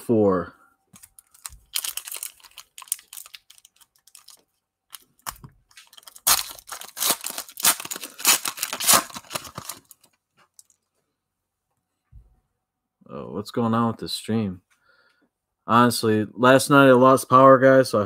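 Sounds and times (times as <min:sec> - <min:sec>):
foil wrapper tearing and crinkling: 0:01.1 - 0:10.7.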